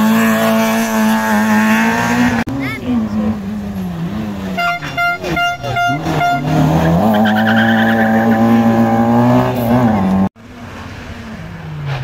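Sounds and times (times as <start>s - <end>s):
rally car engine at high revs: 0.0s - 12.0s
tyres squealing: 4.0s - 10.2s.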